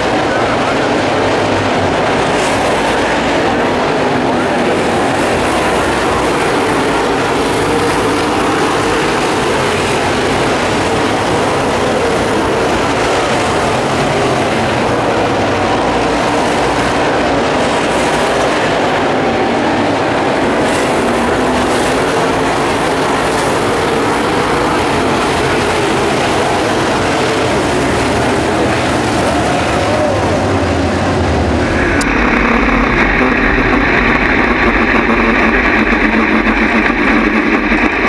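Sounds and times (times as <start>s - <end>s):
race car engines roaring: 0.0s - 38.0s.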